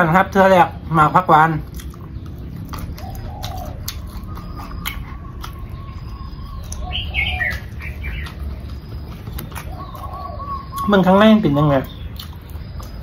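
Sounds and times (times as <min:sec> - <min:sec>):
bird chirps: 0:00.6 - 0:13.0
dove cooing: 0:02.8 - 0:10.9.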